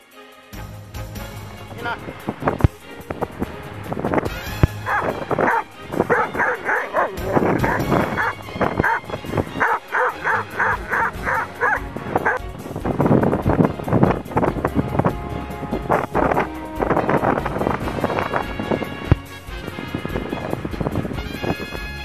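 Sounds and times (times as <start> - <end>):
dog barking quickly: 4.3 - 12.4.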